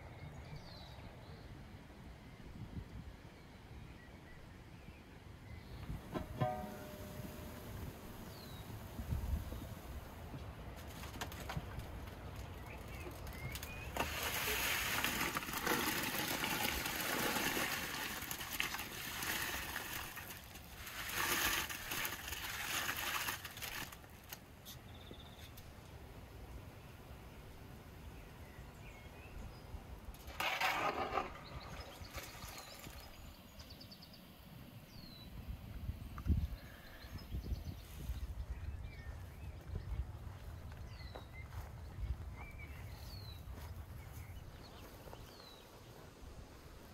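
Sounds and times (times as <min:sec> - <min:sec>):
rustling and splashing in water: 0:06.0 - 0:24.8, 0:30.3 - 0:33.5.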